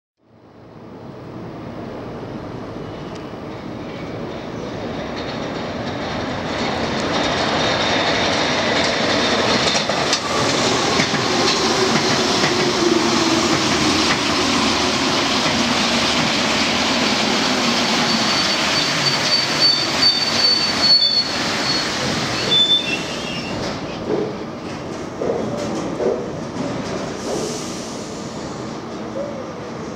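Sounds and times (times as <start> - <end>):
train low hum: 0.2 - 29.9
train brake squeal: 18.0 - 23.6.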